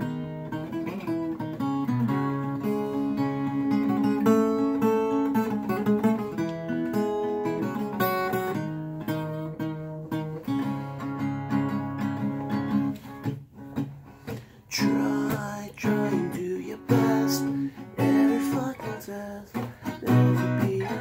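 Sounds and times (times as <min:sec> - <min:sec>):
twelve-string acoustic guitar: 0:00.0 - 0:21.0.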